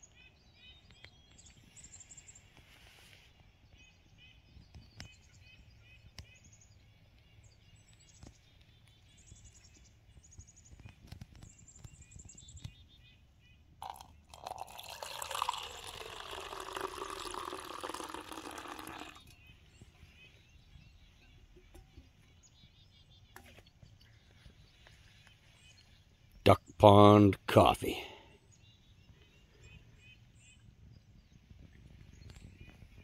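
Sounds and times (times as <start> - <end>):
coffee pouring into metal cup: 13.8 - 19.4.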